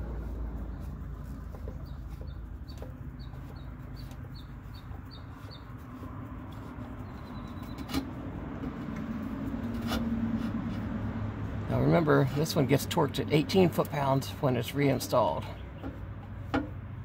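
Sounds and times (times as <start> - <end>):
bird chirping: 0.7 - 6.0, 6.9 - 7.9.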